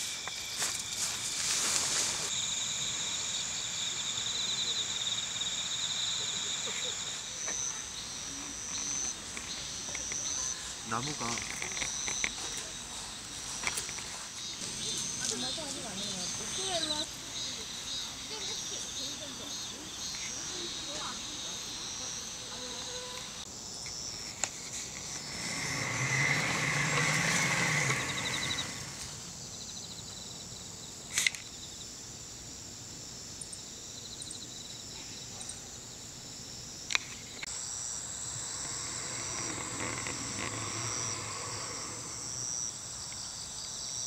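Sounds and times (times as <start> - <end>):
insects chirring: 0.0 - 44.0
vehicle passing: 25.2 - 29.3, 38.3 - 42.6.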